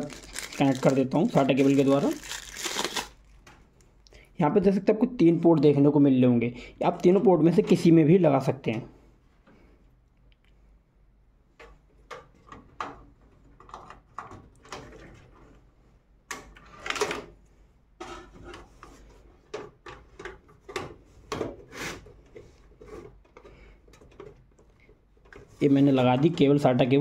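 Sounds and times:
cable clicking and rustling: 0.0 - 3.9.

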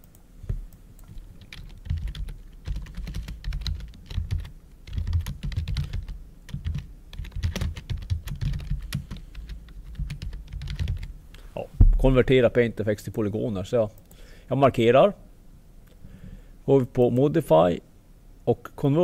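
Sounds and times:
computer keyboard typing: 1.0 - 11.1.

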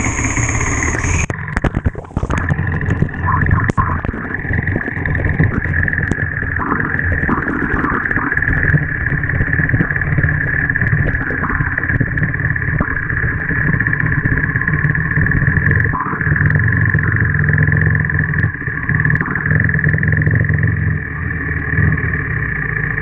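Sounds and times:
water splashing: 0.0 - 16.0
motorcycle engine running: 0.0 - 23.0.

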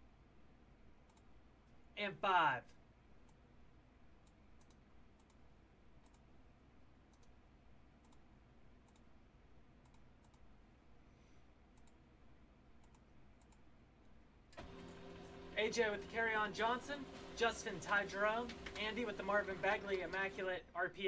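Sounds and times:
mouse and keyboard clicks: 8.0 - 8.2, 9.8 - 10.5, 12.8 - 13.6.

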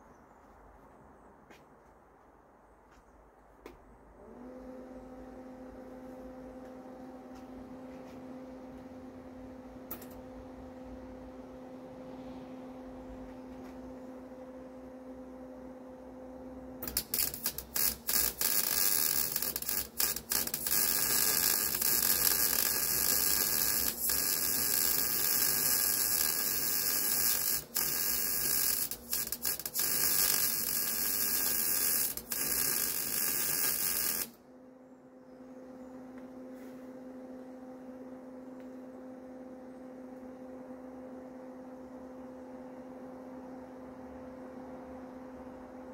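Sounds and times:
welder humming: 15.0 - 34.4
welding arc crackling sizzle: 16.8 - 34.4.

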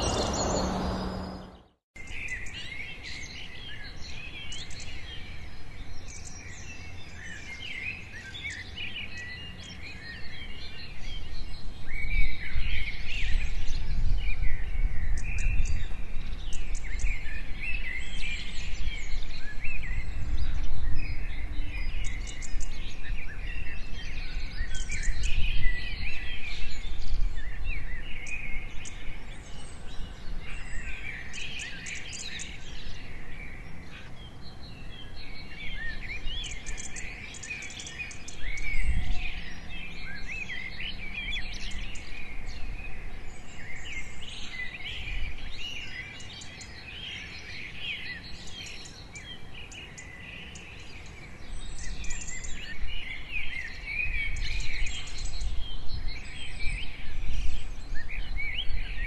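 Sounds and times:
low rumble: 0.0 - 1.8
small birds chirping: 0.0 - 59.0.

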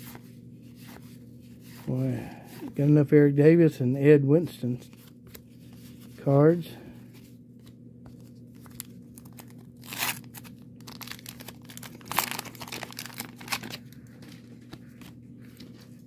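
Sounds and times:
wax paper wrapper crinkling: 7.6 - 16.0.

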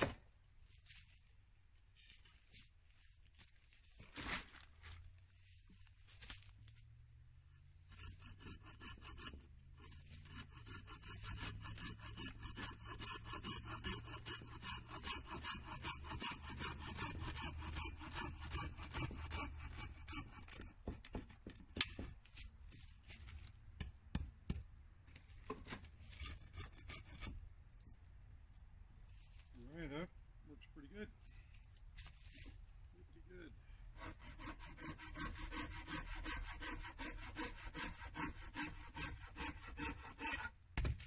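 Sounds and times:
pruning saw rasping through wood: 7.8 - 22.0, 26.0 - 27.4, 33.9 - 41.0.

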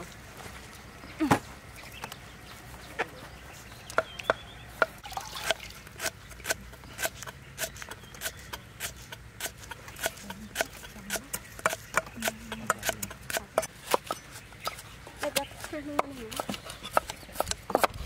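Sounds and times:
knife chopping on wooden board: 6.0 - 14.2, 15.2 - 18.0.

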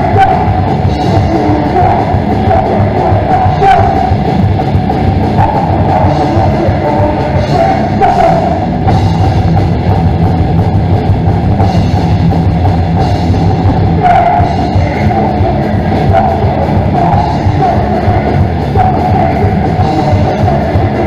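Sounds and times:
metal band playing live: 0.0 - 21.0.

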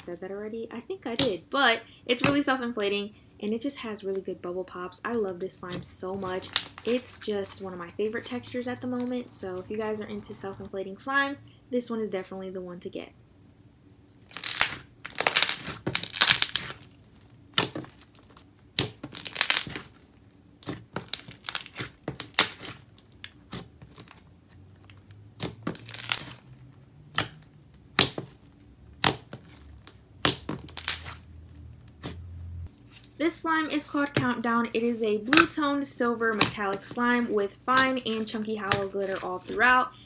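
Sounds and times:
slime squished by hand: 14.3 - 16.9, 17.5 - 20.0, 20.6 - 24.2, 29.0 - 31.2.

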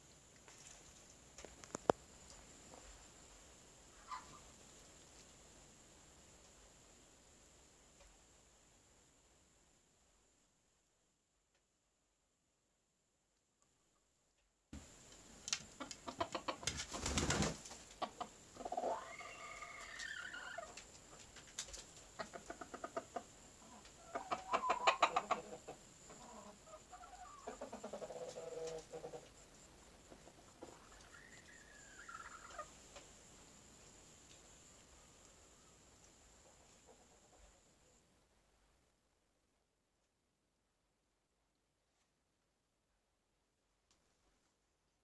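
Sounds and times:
chicken clucking: 3.9 - 4.5, 15.7 - 33.0, 36.3 - 37.7
chicken drawn-out calls: 3.9 - 4.5, 15.7 - 21.3, 22.1 - 29.4, 30.0 - 32.8.

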